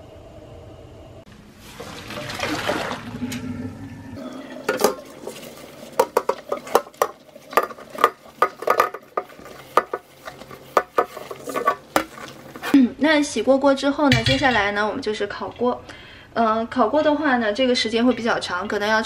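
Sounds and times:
sponge scrubbing a wok: 1.5 - 3.1, 4.3 - 12.8
water splashing into a sink: 1.6 - 3.5, 4.4 - 10.1
iron wok clanking against sink: 4.5 - 12.7, 14.1 - 15.8.

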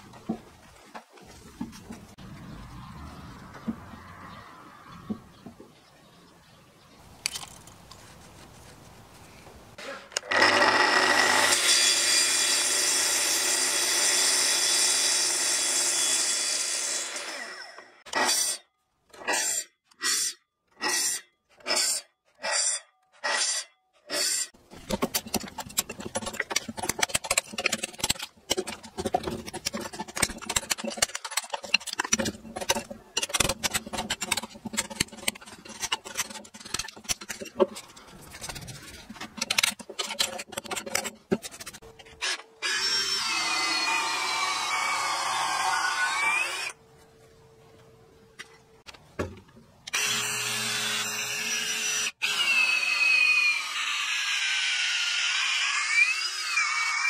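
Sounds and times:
power drill running: 10.3 - 17.9.

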